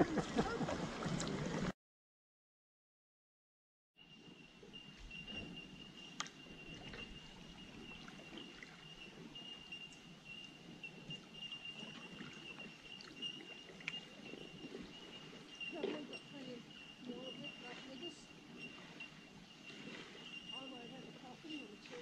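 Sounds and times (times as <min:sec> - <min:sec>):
kayak paddle dipping in water: 0:00.0 - 0:01.7, 0:06.2 - 0:22.0
thin steady high tone: 0:04.0 - 0:22.0.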